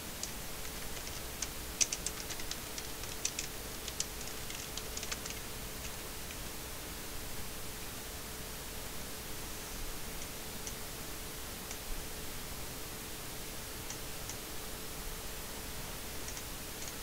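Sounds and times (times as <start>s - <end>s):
faint hum and hiss: 0.0s - 17.0s
keyboard typing clicks: 0.2s - 6.0s.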